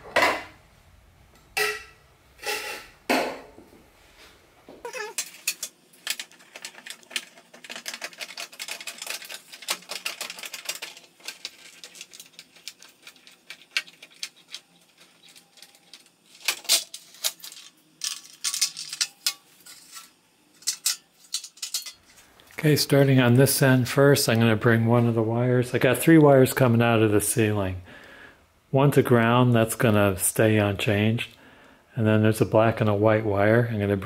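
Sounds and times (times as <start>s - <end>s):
plastic cover clicking and rattling: 5.1s - 19.4s.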